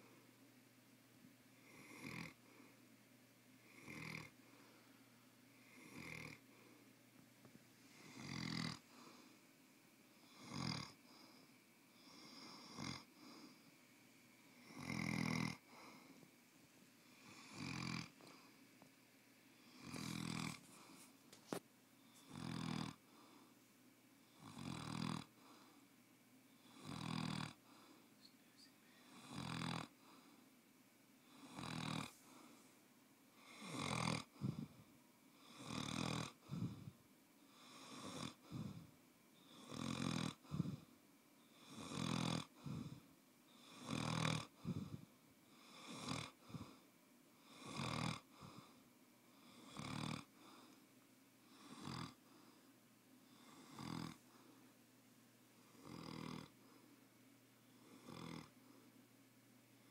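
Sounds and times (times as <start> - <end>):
dog snoring: 1.6 - 2.4, 3.6 - 4.4, 5.6 - 6.4, 7.9 - 9.3, 10.2 - 11.4, 12.0 - 13.5, 14.6 - 16.1, 17.1 - 18.5, 19.6 - 21.0, 22.1 - 23.4, 24.3 - 25.8, 26.6 - 27.9, 29.0 - 30.3, 31.2 - 32.6, 33.4 - 34.8, 35.4 - 40.9, 41.5 - 46.8, 47.4 - 50.7, 51.4 - 52.6, 53.3 - 54.4, 55.7 - 56.8, 57.8 - 58.6.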